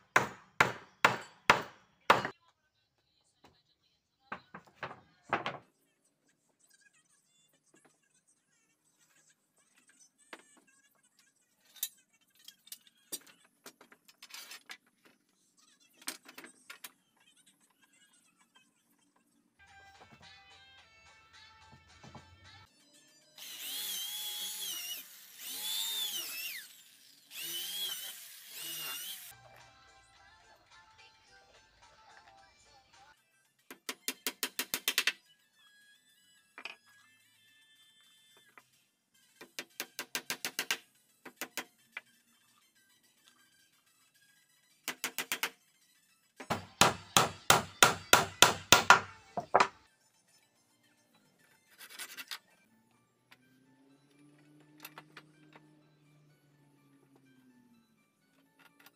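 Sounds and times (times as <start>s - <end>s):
hammer striking wooden peg: 0.0s - 2.3s, 46.4s - 49.8s
electric drill boring into wood: 23.4s - 29.3s.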